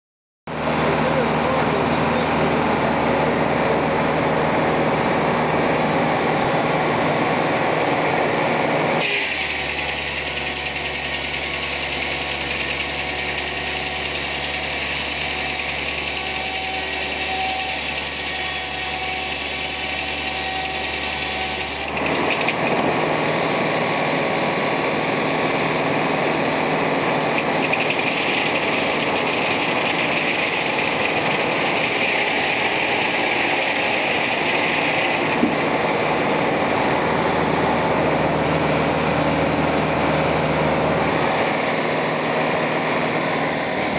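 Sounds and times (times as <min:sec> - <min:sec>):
circular saw blade spinning: 0:09.2 - 0:18.3, 0:27.2 - 0:35.4.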